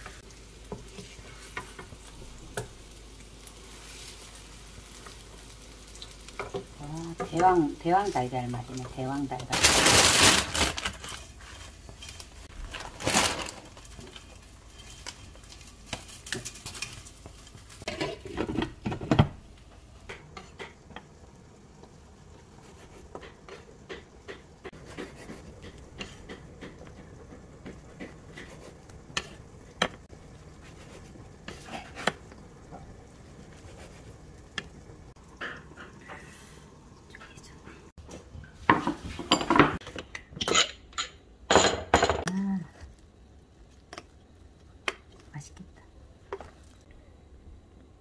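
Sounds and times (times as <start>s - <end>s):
pans and utensils clattering: 9.5s - 19.4s, 35.2s - 36.3s, 38.0s - 42.3s.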